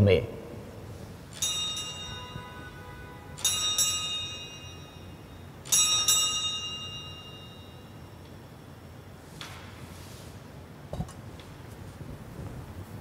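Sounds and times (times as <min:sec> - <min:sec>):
altar bells ringing: 0:01.3 - 0:08.7.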